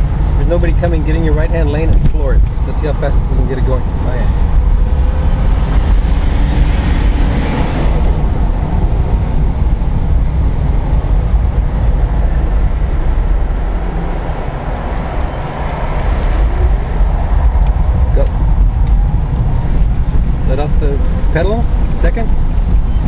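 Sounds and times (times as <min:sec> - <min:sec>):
wind and tyre noise in car cabin: 0:00.0 - 0:23.0.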